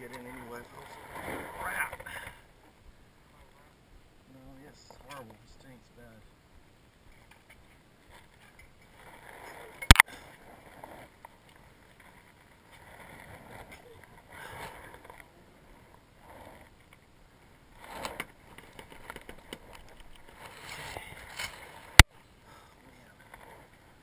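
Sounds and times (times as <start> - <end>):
scraping and rustling on ladder: 17.8 - 22.0.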